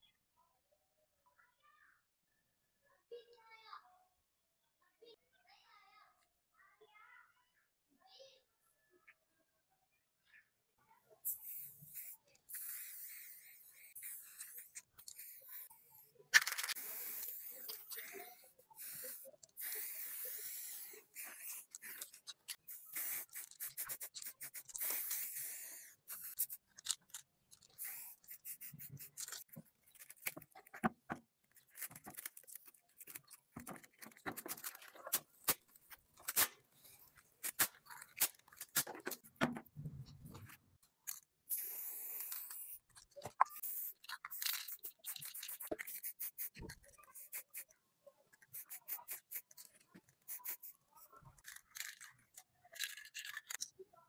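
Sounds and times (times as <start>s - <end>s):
spray paint can hissing: 11.2s - 30.5s, 37.4s - 39.2s, 41.5s - 47.7s, 48.4s - 50.8s
clicks and scrapes of handled parts: 16.3s - 41.6s, 42.2s - 47.7s, 48.3s - 53.8s.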